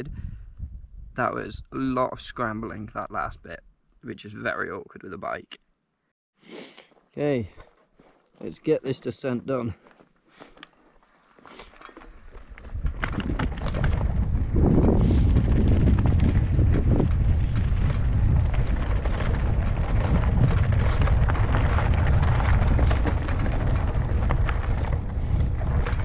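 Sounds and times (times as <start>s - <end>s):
wind rumbling on microphone: 0.0s - 3.5s, 12.1s - 26.0s
bike tyres clattering over stones: 9.9s - 26.0s.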